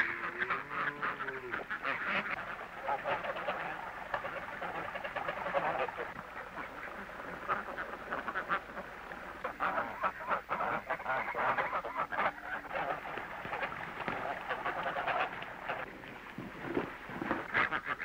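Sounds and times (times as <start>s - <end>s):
poultry calling: 0.0s - 18.0s.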